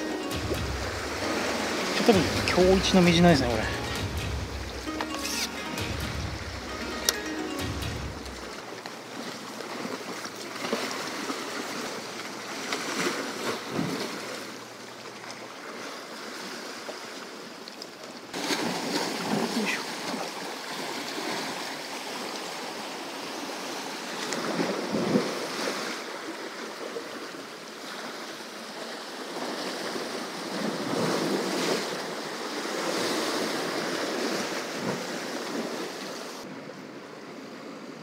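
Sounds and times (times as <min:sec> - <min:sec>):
surf washing against rocky shore: 0:18.4 - 0:26.7.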